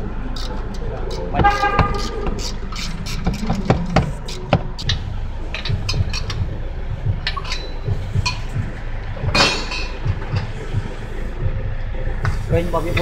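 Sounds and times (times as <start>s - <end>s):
low steady rumble: 0.0s - 13.0s
metal tools clinking: 7.3s - 8.4s.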